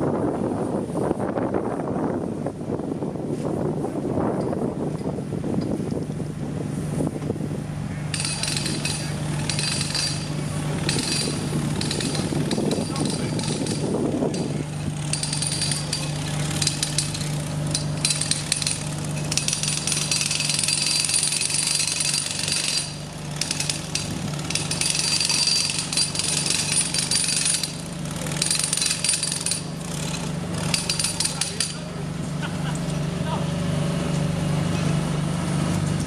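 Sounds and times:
low engine hum: 0.0 - 25.8, 31.8 - 36.0
jackhammer rattling: 8.1 - 31.9.

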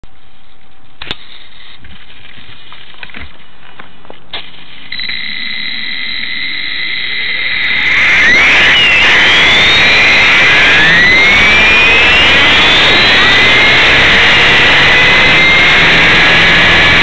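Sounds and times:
helicopter motor high whine: 4.9 - 17.0.

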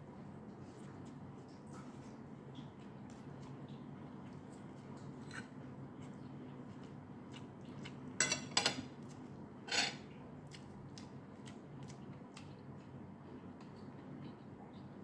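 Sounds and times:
low steady hum: 0.0 - 15.0
cutlery clinking against a plate: 8.2 - 8.9, 9.7 - 10.0
cutlery scraping: 9.7 - 10.0.

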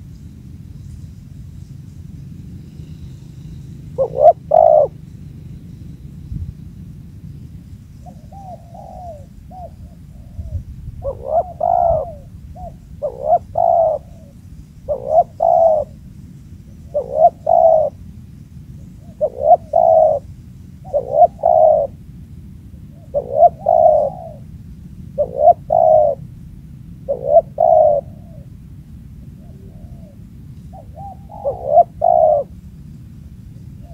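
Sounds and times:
dove cooing: 2.7 - 5.2, 8.0 - 16.1, 16.7 - 18.1, 18.8 - 22.0, 22.8 - 26.4, 27.0 - 28.6, 29.2 - 32.6.

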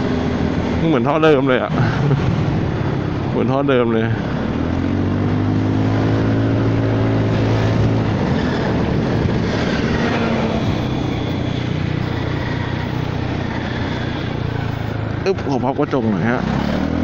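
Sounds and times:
scooter engine humming: 0.0 - 17.0
wind noise on microphone: 5.0 - 15.0.

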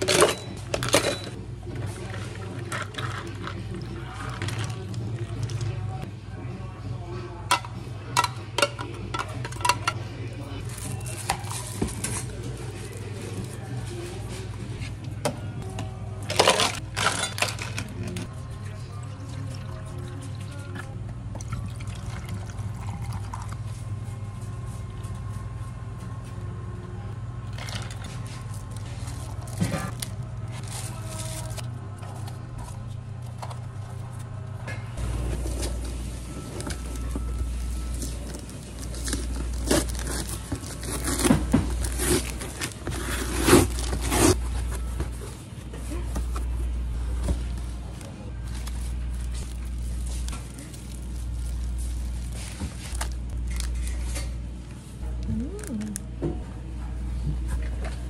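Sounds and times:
steady low hum: 17.7 - 58.0
packing tape ripping: 38.2 - 44.4.

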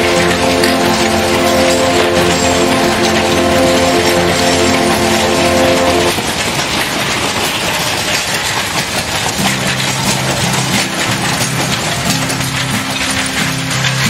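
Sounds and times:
low steady tones: 0.0 - 6.2
wagon wheels clattering on track: 0.0 - 14.0.

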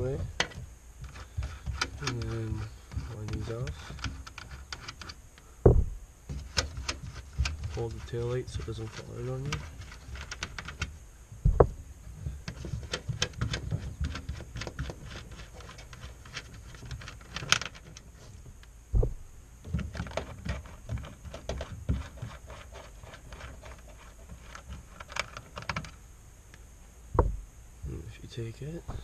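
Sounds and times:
metallic clicks and rattles of nuts: 0.2 - 5.2, 9.4 - 10.9, 12.4 - 18.1
dull thumps against car body: 5.6 - 6.4, 11.4 - 11.8, 18.9 - 19.9, 27.1 - 27.4.

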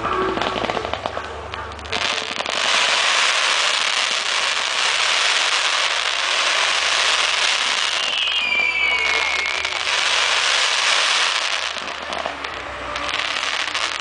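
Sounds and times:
fireworks crackling: 0.0 - 14.0
falling firework whistle: 2.2 - 12.3.

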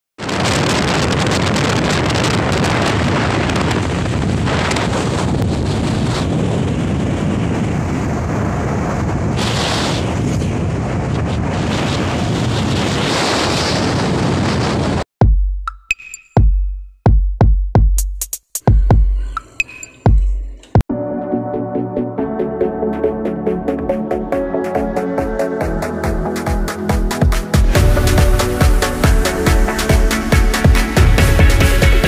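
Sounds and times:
wind buffeting microphone: 0.2 - 15.1.

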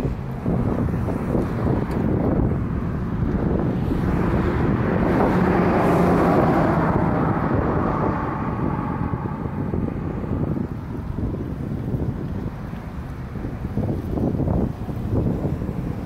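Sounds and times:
vehicle passing on road: 0.0 - 16.0
wind buffeting microphone: 0.0 - 16.0.

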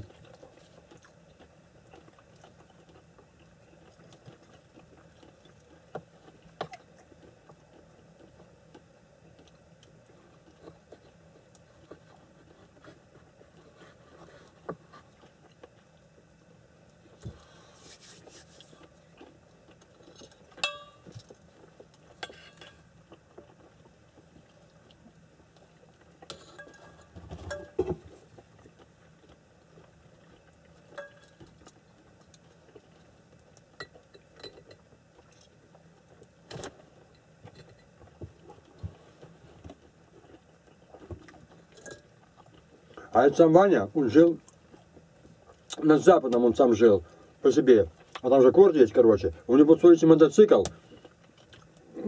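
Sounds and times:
dishes and cutlery clinking: 20.2 - 21.3, 22.2 - 22.8, 26.3 - 28.0, 30.9 - 31.4.

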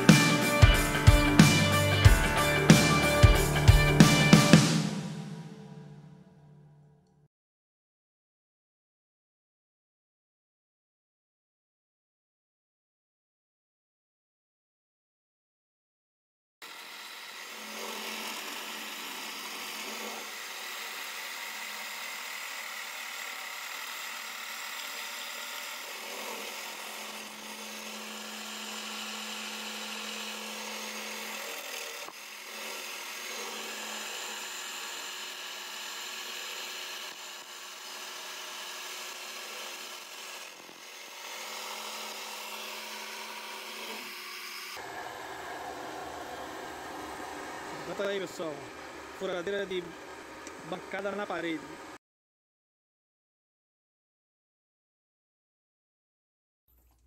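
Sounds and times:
drill bit cutting metal: 16.6 - 52.0
low motor hum: 44.8 - 52.0.

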